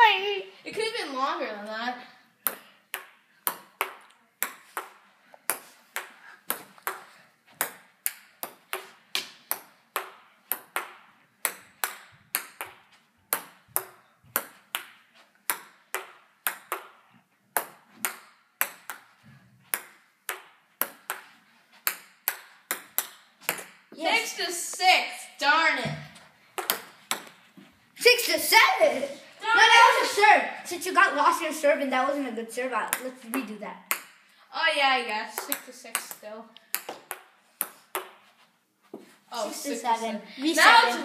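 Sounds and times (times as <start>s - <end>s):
ping-pong ball clicking off paddles: 2.4s - 23.9s, 26.6s - 27.4s, 32.8s - 34.2s, 35.3s - 38.2s.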